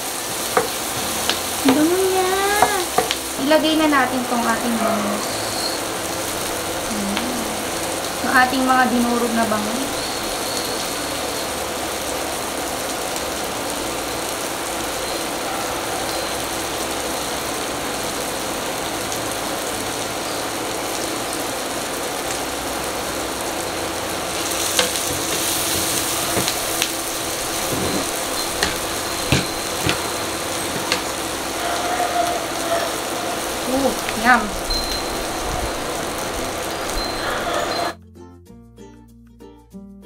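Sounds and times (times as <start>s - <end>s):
butter and onions sizzling in a pan: 0.0s - 38.0s
spatula clicking against plate and pan: 2.6s - 3.2s.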